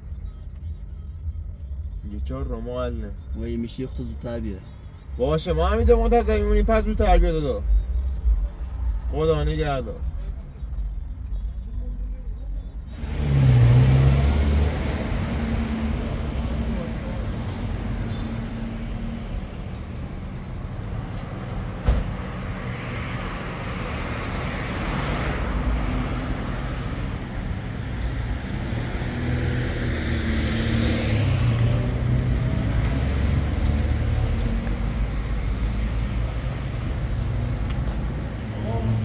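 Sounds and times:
low traffic rumble: 0.0 - 39.0
cars passing: 0.5 - 39.0
sharp knock: 21.8 - 22.2.

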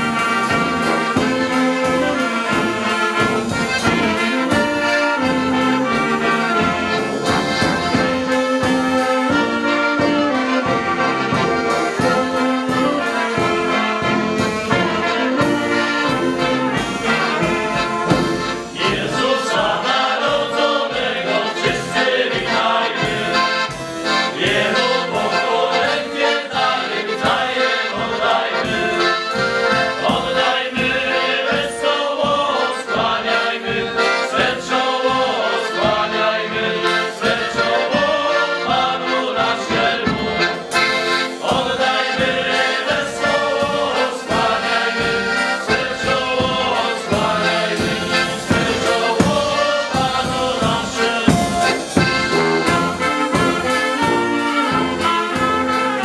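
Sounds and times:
men singing a carol: 0.0 - 56.0
piano-accordion: 0.0 - 56.0
bass drum beat: 13.8 - 19.8, 46.0 - 55.7.

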